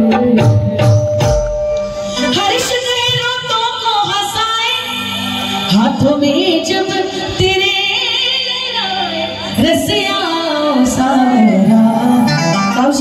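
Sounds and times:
woman singing devotional song: 5.7 - 13.0.

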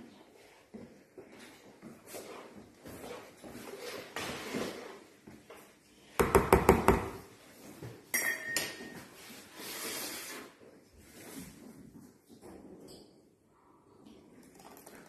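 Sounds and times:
ceramic clink on counter: 8.1 - 9.0.

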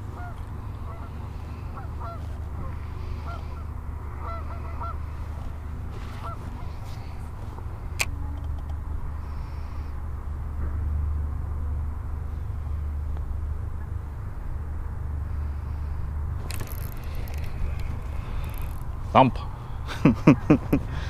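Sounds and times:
low rumble: 0.0 - 21.0
geese honking: 0.1 - 5.4, 6.0 - 7.2.

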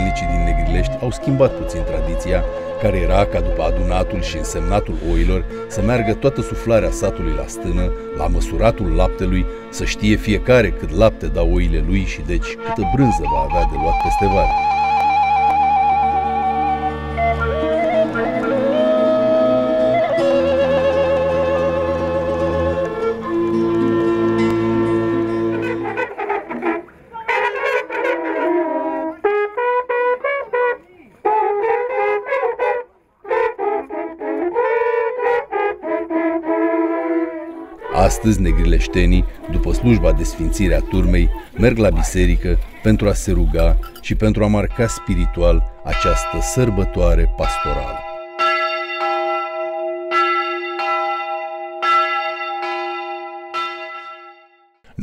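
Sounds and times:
long wooden horns blowing: 0.0 - 48.7
church bell ringing: 23.5 - 26.0, 38.0 - 43.3, 44.1 - 55.0.

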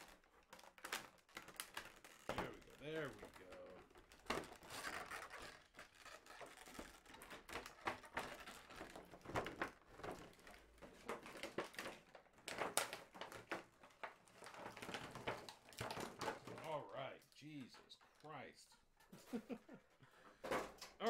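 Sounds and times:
plastic packaging crinkling: 0.0 - 16.7.

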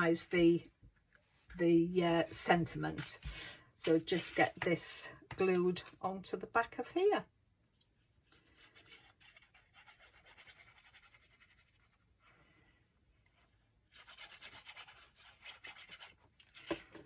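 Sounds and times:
glue nozzle rubbing on card: 8.6 - 12.0, 13.9 - 16.2.

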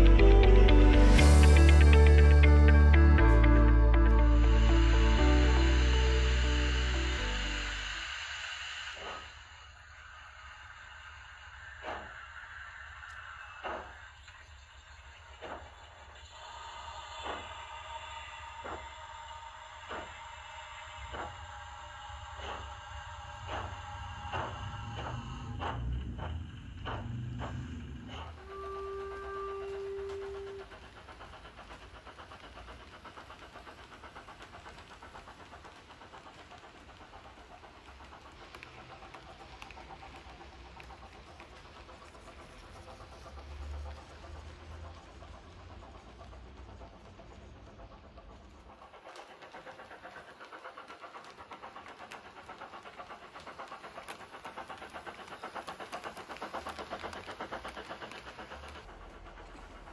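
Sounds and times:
model train wheels clicking: 0.0 - 59.9
held whistle tone: 27.4 - 31.5.

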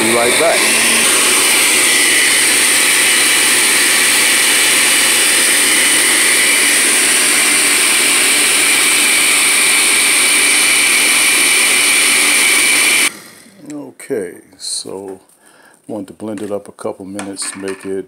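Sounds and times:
blender running: 0.0 - 13.8.

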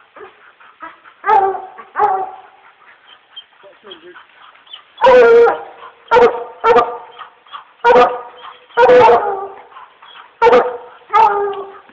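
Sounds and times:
hunting dogs barking: 0.0 - 11.9.

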